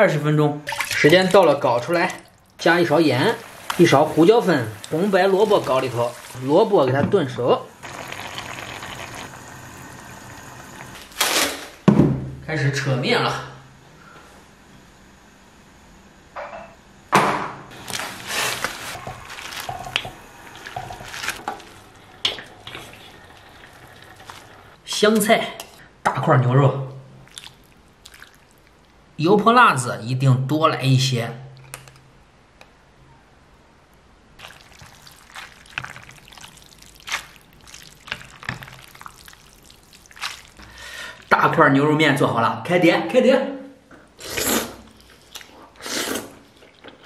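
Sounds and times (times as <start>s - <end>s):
noodles dripping into bowl: 34.4s - 40.6s
wet dough slapping: 34.4s - 40.6s.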